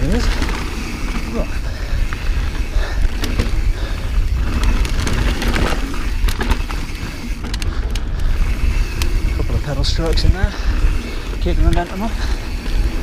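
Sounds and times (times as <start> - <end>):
bike rattling clicks and knocks: 0.0 - 13.0
bike tyres on dirt: 0.0 - 13.0
wind rumble on microphone: 0.0 - 13.0.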